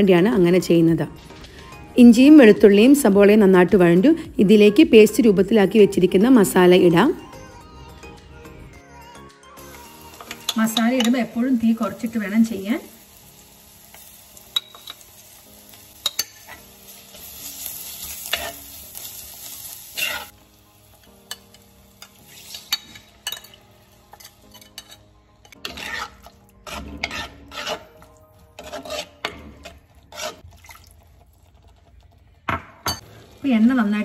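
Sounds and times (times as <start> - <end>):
paste sizzling in hot oil: 9.6 - 29.2, 30.0 - 31.6
metal spoon scraping pan: 19.9 - 20.3, 21.3 - 30.5.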